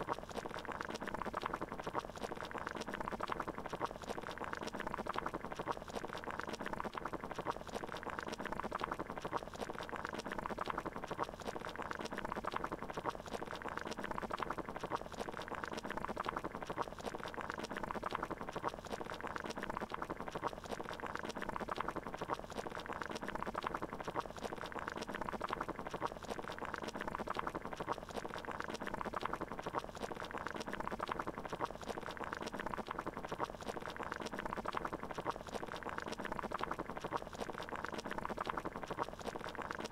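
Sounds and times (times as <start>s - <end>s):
water boiling: 0.0s - 39.9s.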